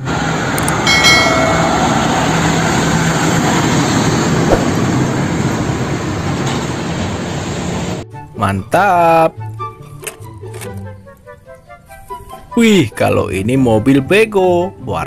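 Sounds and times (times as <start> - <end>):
brief high tones: 0.9 - 2.7.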